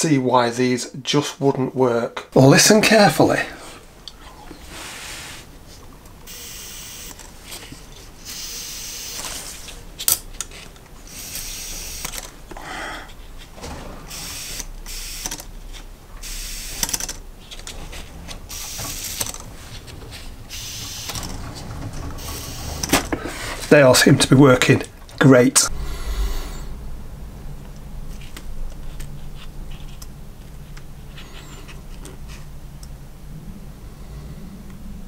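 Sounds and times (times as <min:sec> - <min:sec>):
hissing puffs of blown air: 0:04.4 - 0:05.6, 0:25.7 - 0:27.6
sharp clicks of metal parts: 0:10.0 - 0:12.6, 0:13.6 - 0:23.7.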